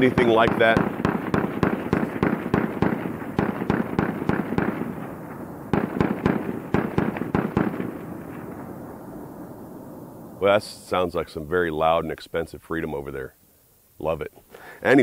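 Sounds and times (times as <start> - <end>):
rapid gunfire: 0.0 - 8.6.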